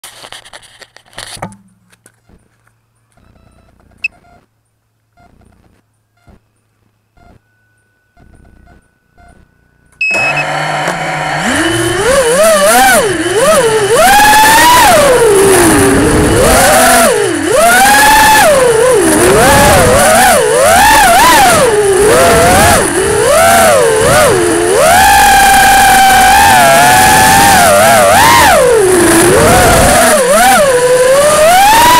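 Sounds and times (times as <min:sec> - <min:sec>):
drone motors whining: 0:05.2 - 0:31.9
short high beep: 0:07.1 - 0:10.6.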